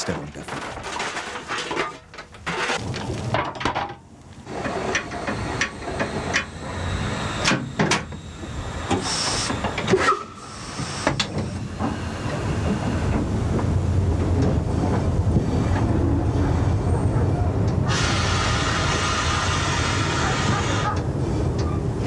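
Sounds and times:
locomotive running rumble: 0.0s - 22.0s
steam hiss: 4.5s - 13.2s, 17.9s - 21.6s.

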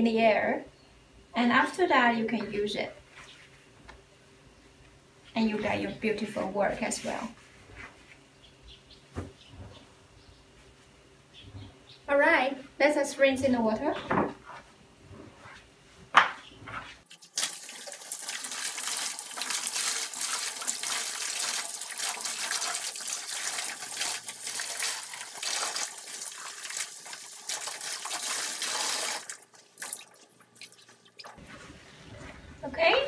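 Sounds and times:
tap water splashing into bucket: 17.1s - 31.4s.

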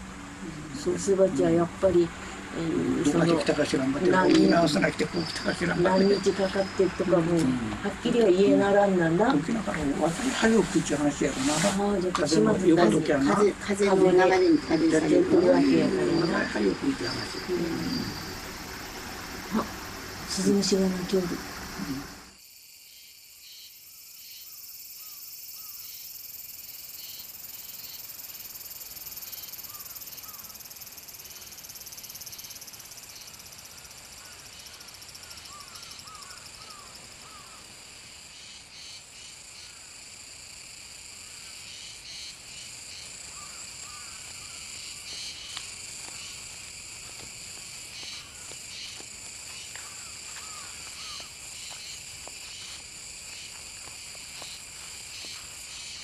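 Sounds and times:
crickets and cicadas chorus: 0.0s - 56.0s.

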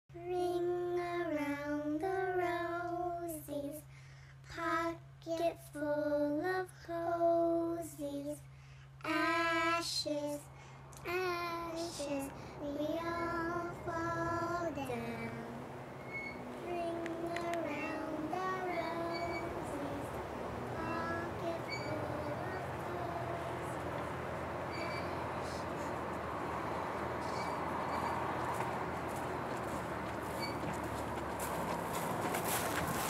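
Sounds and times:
child singing: 0.1s - 3.9s, 4.5s - 8.4s, 9.0s - 15.6s, 16.5s - 25.9s
steady low hum: 8.4s - 33.0s.

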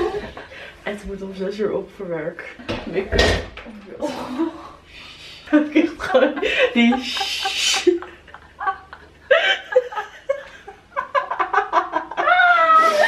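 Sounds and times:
young women laughing: 5.5s - 13.0s.

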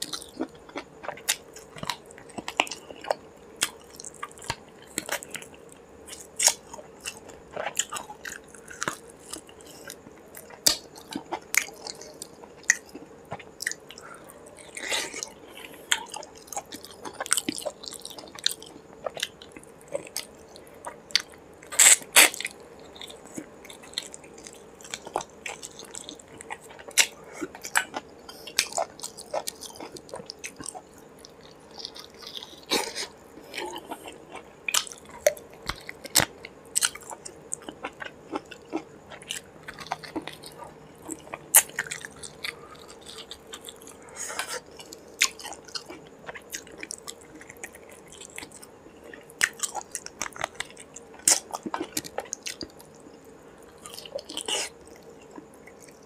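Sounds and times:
man chewing food: 0.0s - 56.0s.

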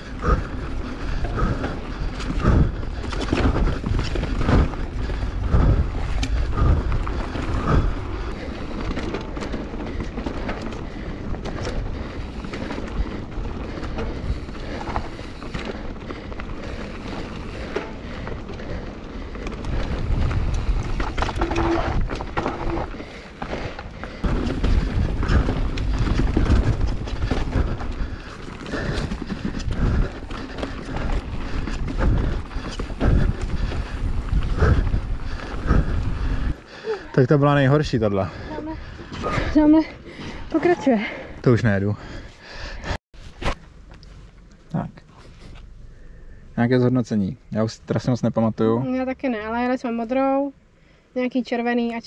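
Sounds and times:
bike knocking and rattling: 0.0s - 41.1s
bike tyres rolling on dirt: 0.0s - 44.4s.

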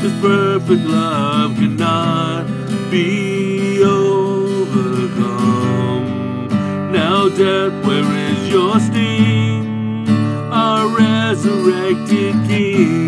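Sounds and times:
man singing: 0.0s - 13.0s
strummed acoustic guitar: 0.0s - 13.0s.

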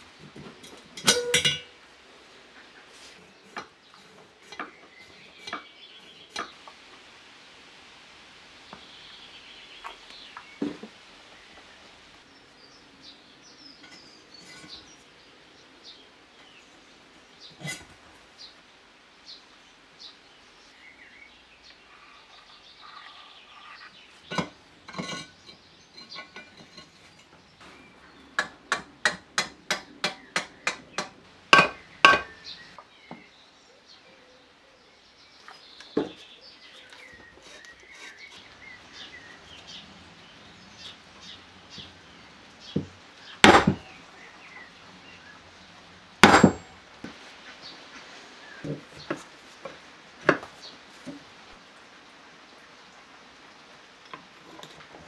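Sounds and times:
sharp metal knocks: 1.0s - 1.8s, 28.4s - 32.3s, 43.4s - 43.9s, 46.2s - 46.8s.

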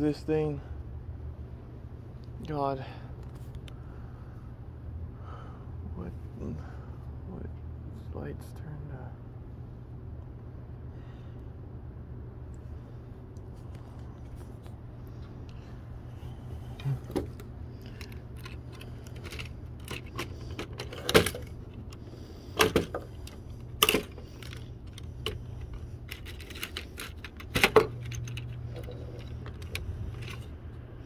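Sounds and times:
steady low hum: 0.0s - 31.0s
metal and plastic pieces clattering: 17.8s - 22.0s, 22.6s - 30.5s.

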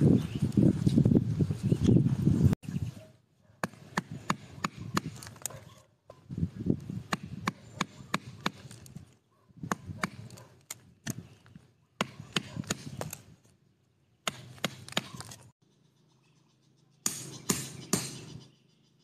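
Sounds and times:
knife chopping bamboo: 3.6s - 5.4s, 12.0s - 13.2s, 14.2s - 15.4s.

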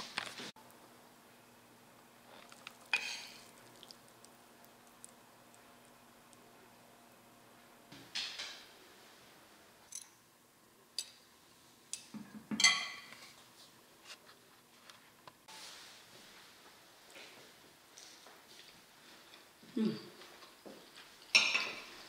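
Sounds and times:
metal spoon clinking on dish: 12.6s - 13.1s.

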